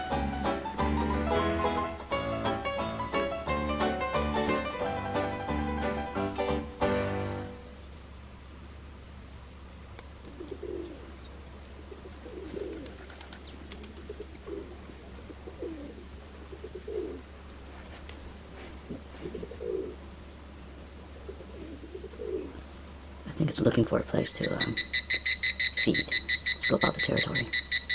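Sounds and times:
bird cooing: 0:10.2 - 0:18.0, 0:18.8 - 0:20.2, 0:21.0 - 0:22.8.

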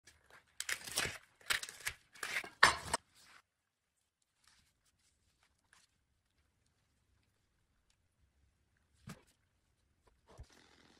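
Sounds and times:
cling film ripping: 0:00.6 - 0:02.6.

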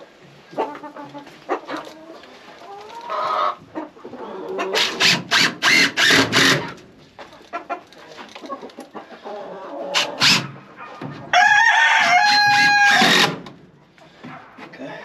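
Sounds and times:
chickens clucking: 0:00.0 - 0:15.0
cordless drill driving screws: 0:04.8 - 0:06.8, 0:10.0 - 0:10.5, 0:12.5 - 0:13.4.

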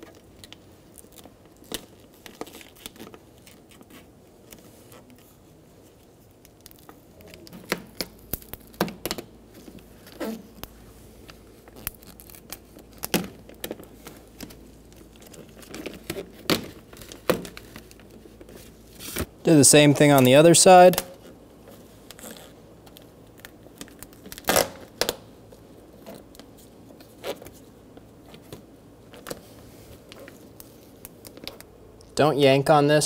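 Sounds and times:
sharp plastic crackles: 0:00.0 - 0:05.4, 0:06.2 - 0:19.4, 0:20.1 - 0:32.2
plastic sheet peeling from tape: 0:00.0 - 0:19.3, 0:20.9 - 0:27.7.

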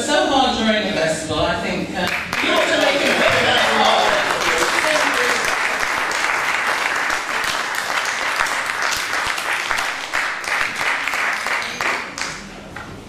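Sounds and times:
audience applauding: 0:02.1 - 0:12.5.

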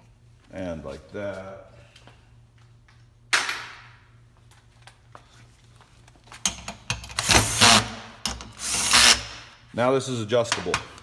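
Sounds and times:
cordless drill driving bolt: 0:07.2 - 0:07.9, 0:08.6 - 0:09.3.

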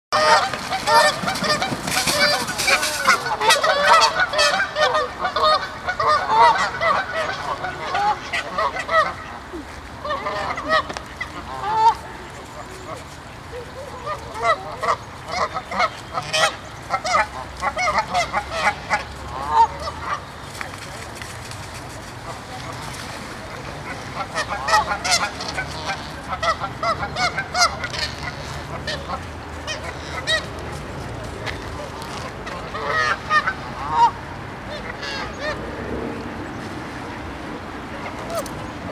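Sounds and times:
geese honking: 0:00.1 - 0:09.4, 0:14.0 - 0:20.3, 0:23.8 - 0:30.6, 0:32.4 - 0:35.6.

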